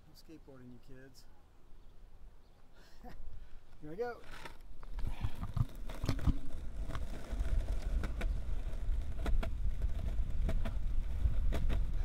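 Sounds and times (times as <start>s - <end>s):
wheels clacking over cracks: 4.2s - 12.0s
longboard wheels rumbling on concrete: 4.3s - 12.0s
wind on microphone: 5.0s - 12.0s.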